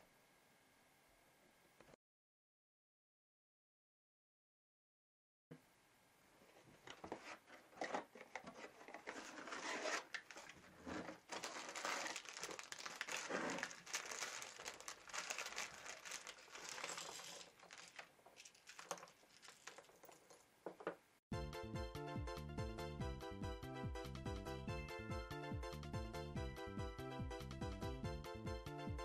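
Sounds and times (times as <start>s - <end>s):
plastic bags crinkling and tearing: 7.7s - 20.4s
plastic pieces clicking on table: 14.8s - 21.0s.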